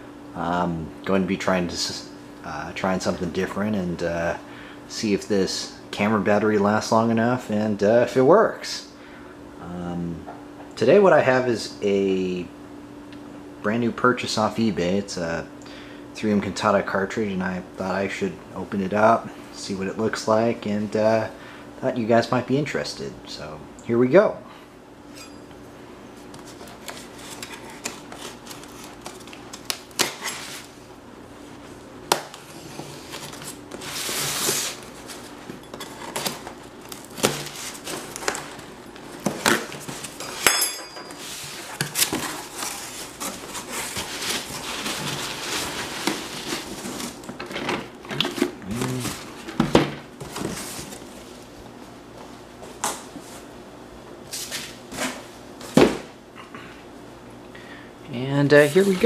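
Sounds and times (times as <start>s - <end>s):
cardboard scraping and rustling: 26.3s - 30.8s, 32.3s - 40.4s, 41.2s - 51.4s
knife cutting packing tape: 26.8s - 30.7s, 35.8s - 38.5s
ringing clink: 40.4s - 41.2s.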